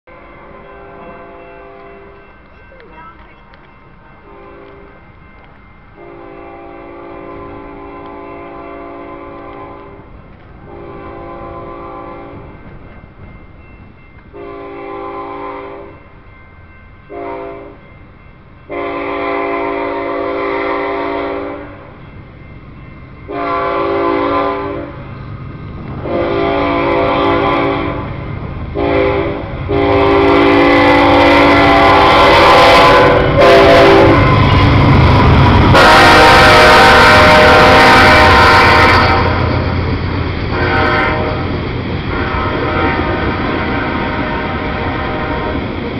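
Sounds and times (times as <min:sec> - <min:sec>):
diesel locomotive engines passing: 0:00.0 - 0:45.9
train wheels: 0:00.1 - 0:45.9
locomotive air horn: 0:06.0 - 0:10.0, 0:10.6 - 0:12.5, 0:14.4 - 0:16.0, 0:17.1 - 0:17.8, 0:18.7 - 0:21.9, 0:23.3 - 0:25.0, 0:26.0 - 0:28.2, 0:28.8 - 0:39.8, 0:40.5 - 0:45.6.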